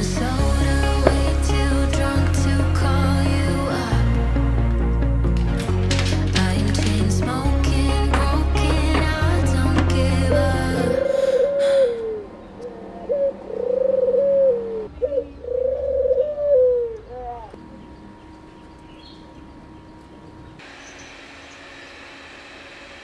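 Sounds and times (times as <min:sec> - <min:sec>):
dove cooing: 0:10.2 - 0:17.9.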